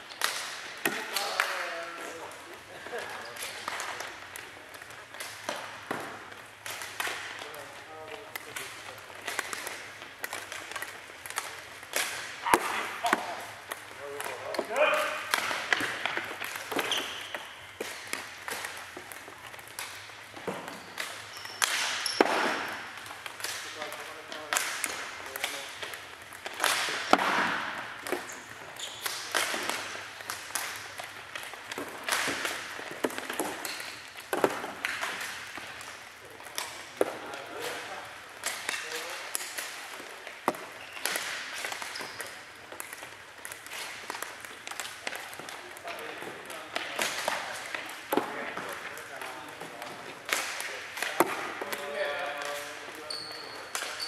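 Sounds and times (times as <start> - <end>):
ball hitting floor: 3.7 - 7.6, 8.3 - 37.8.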